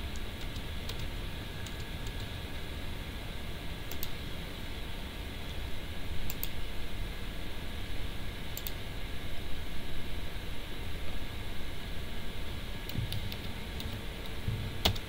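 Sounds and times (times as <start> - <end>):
steady hiss and low hum: 0.0 - 15.0
computer mouse clicking: 0.1 - 2.3, 3.9 - 4.2, 6.3 - 6.6, 8.6 - 8.8, 12.9 - 15.0.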